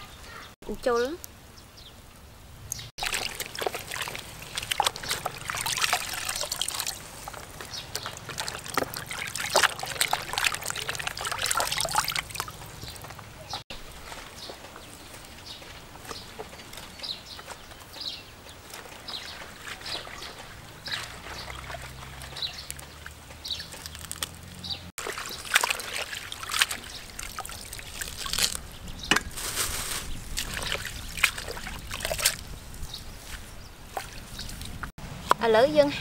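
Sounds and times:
water dripping and trickling: 2.7 - 33.3
water sloshing and splashing: 3.0 - 17.6, 18.3 - 34.9.

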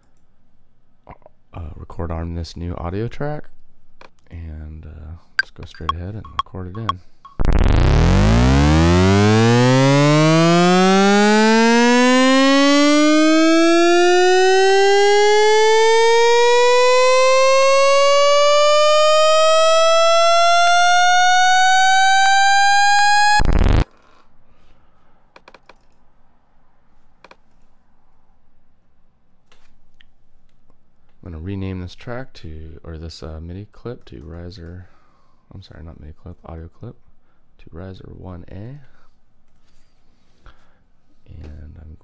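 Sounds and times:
synthesizer note sweeping upward: 7.3 - 23.8.

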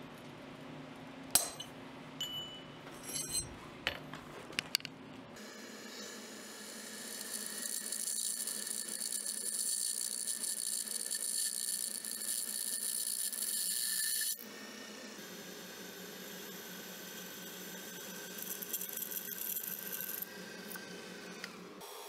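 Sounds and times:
drill bit cutting steel: 5.8 - 14.4
drill press motor hum: 14.4 - 22.0.

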